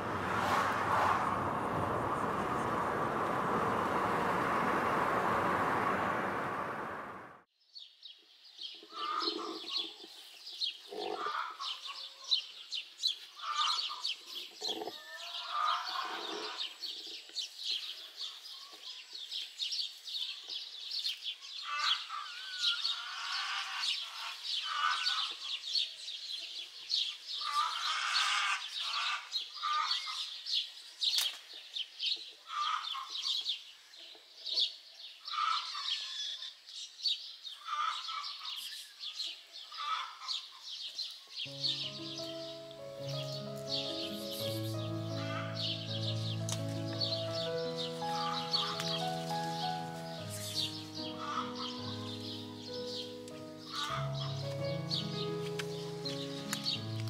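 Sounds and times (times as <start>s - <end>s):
road noise inside moving car: 0.0s - 7.4s
high-pitched bird chirping: 41.5s - 55.4s.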